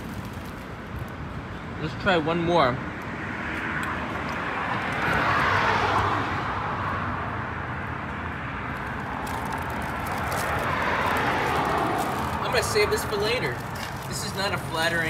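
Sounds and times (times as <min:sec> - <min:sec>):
plastic wrapper crinkling: 0:00.0 - 0:01.2, 0:08.7 - 0:15.0
city road traffic: 0:00.0 - 0:15.0
vehicle passing: 0:00.0 - 0:15.0.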